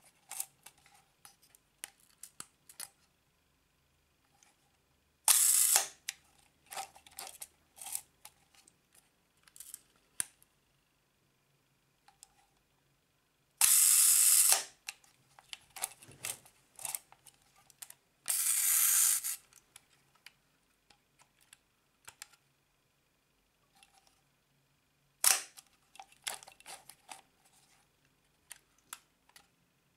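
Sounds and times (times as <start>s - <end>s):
camera advance ratcheting: 5.3s - 6.0s, 13.6s - 14.7s, 18.3s - 19.4s
camera shutter clicks: 5.3s - 6.0s, 13.6s - 14.7s, 25.2s - 25.6s.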